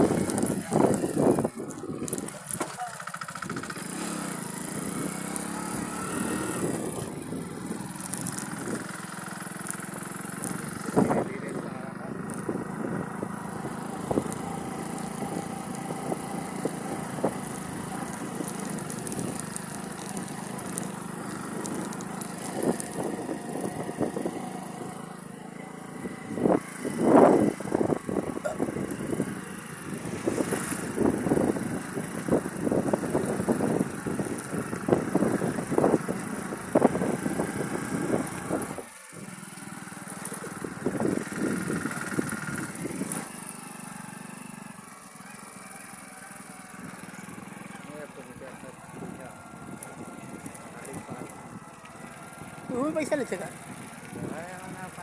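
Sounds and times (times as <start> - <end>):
motorcycle engine: 0.0 - 55.0
wind buffeting microphone: 26.0 - 38.9, 40.4 - 43.2.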